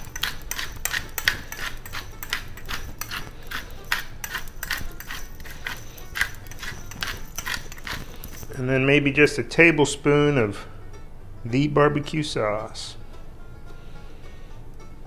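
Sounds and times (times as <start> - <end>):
pepper mill grinding clicks: 0.0 - 8.6.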